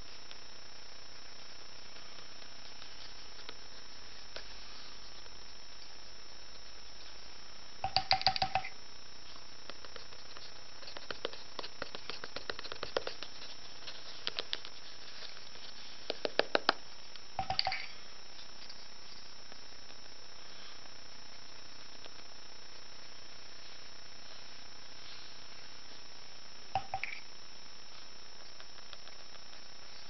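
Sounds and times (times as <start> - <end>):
pen nib scratching on paper: 9.2 - 16.8.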